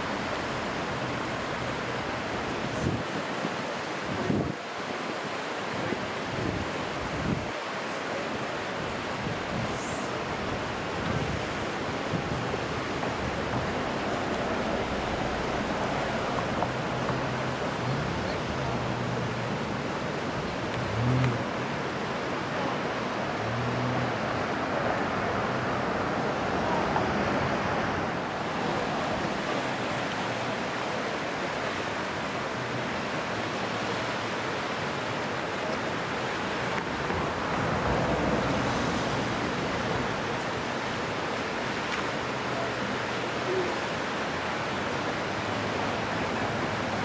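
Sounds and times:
river water rushing past rocks: 0.0 - 47.0.

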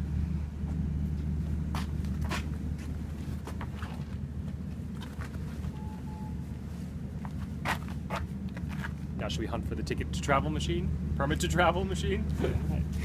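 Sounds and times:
footsteps: 0.7 - 5.8.

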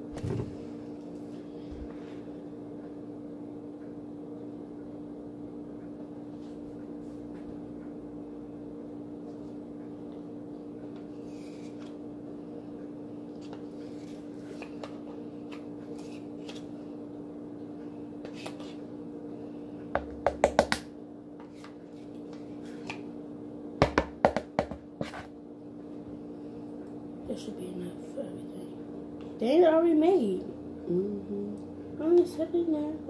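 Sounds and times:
low hum: 30.2 - 33.0.

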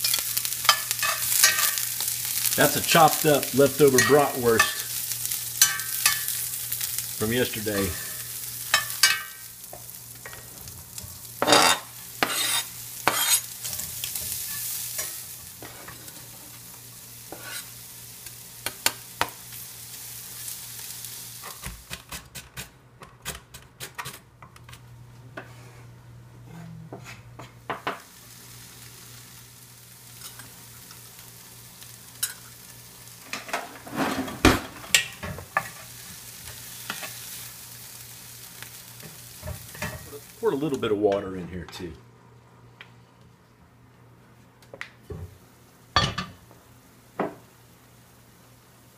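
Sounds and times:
metal spoon scraping skillet: 0.0 - 1.9, 3.9 - 5.0, 5.6 - 6.4, 11.4 - 16.2, 17.3 - 17.8, 33.3 - 35.9
meat sizzling in a skillet: 0.0 - 22.0, 27.8 - 40.9
wooden spoon scraping and stirring: 12.2 - 16.2, 17.3 - 17.7.

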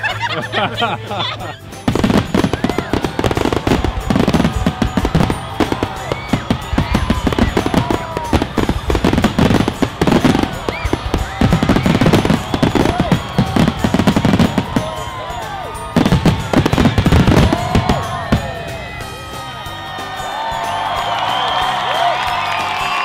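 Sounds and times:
music playing: 0.0 - 23.0
fireworks booming and crackling: 1.7 - 19.7.

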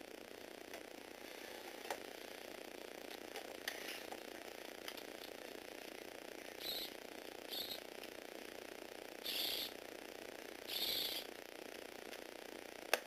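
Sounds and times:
small electric motor whirring: 6.5 - 8.1, 9.2 - 9.9, 10.6 - 11.6.

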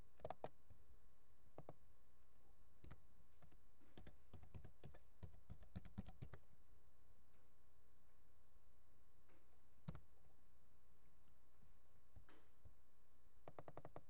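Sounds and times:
keyboard keystrokes: 4.0 - 6.4.

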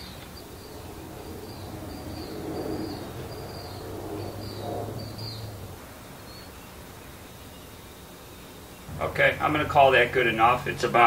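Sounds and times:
bird chirping: 0.0 - 11.0
low steady hum: 0.0 - 11.0.

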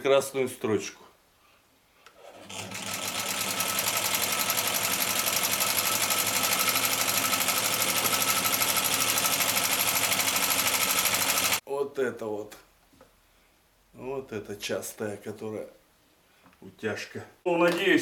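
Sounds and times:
sewing machine running: 2.2 - 11.6.

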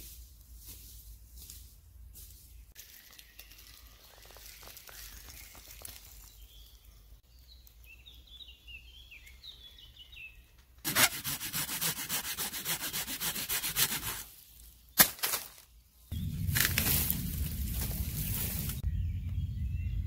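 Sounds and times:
small birds chirping: 2.2 - 10.8, 15.6 - 20.0
hand saw rasping through wood: 10.9 - 14.3.

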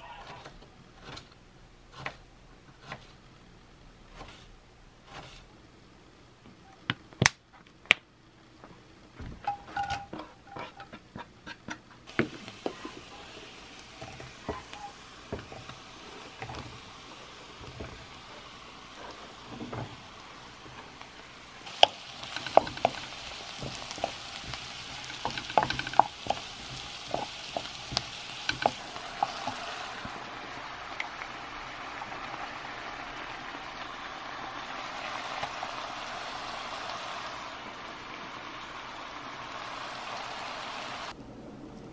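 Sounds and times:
mushrooms sizzling in oil: 12.1 - 41.2
spatula knocking pan: 21.7 - 30.1.

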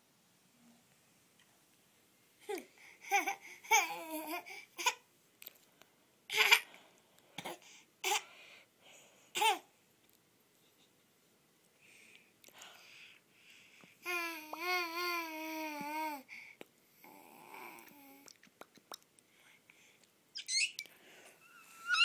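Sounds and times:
baby babbling and laughing: 2.4 - 5.0.

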